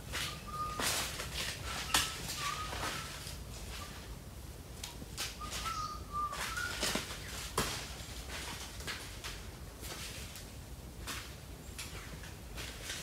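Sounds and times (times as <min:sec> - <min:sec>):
bird whistled calls: 0:00.2 - 0:01.0, 0:01.8 - 0:03.2, 0:05.4 - 0:06.9.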